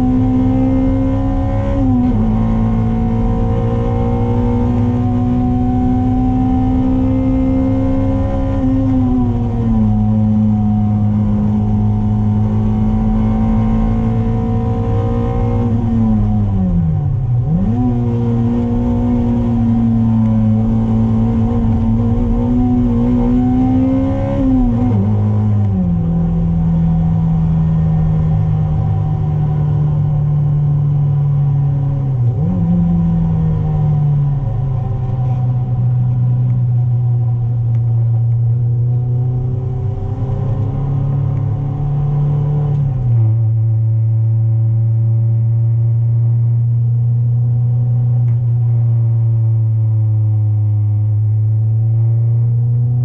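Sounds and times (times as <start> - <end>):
car engine running hard: 0.0 - 53.0.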